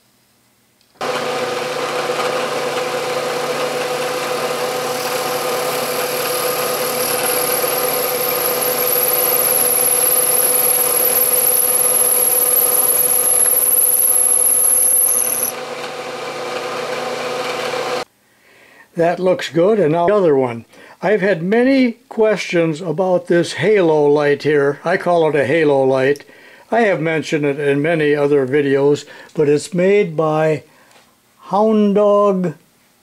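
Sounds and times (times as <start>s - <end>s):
milling machine cutting metal: 1.0s - 18.0s.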